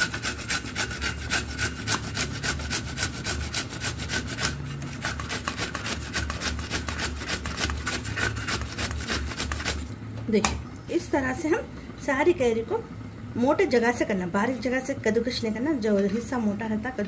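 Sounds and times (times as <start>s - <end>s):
mango rasping on grater: 0.0s - 9.9s.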